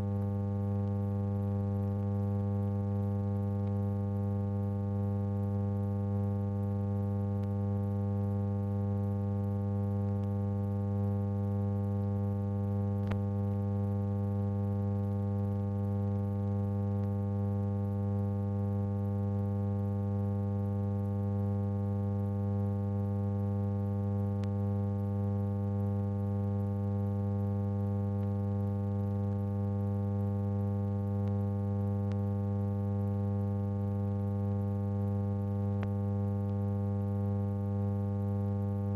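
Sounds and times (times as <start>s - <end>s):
mains hum: 0.0s - 38.9s
faint clicks: 13.0s - 13.2s.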